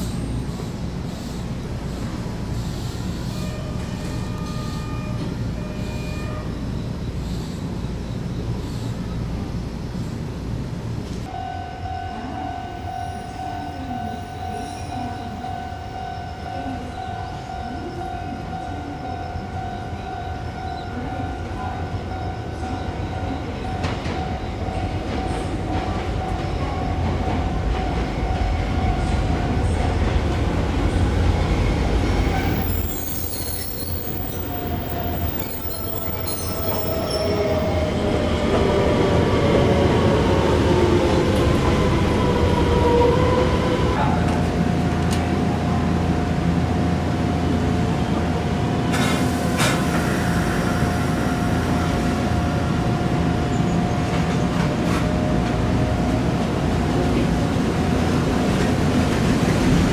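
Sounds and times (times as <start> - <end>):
train wheels squealing: 0.0 - 9.0, 31.8 - 37.9
falling whine of train slowing: 0.0 - 10.3, 11.0 - 59.9.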